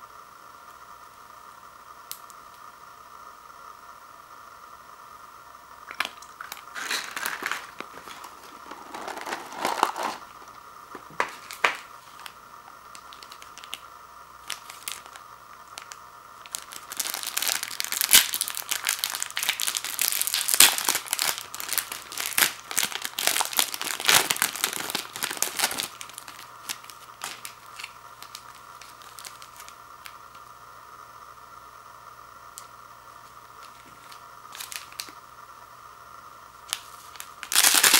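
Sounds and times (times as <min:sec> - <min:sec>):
plastic packets crinkling: 0:05.9 - 0:13.8, 0:14.4 - 0:30.2, 0:33.6 - 0:35.2, 0:36.7 - 0:37.9.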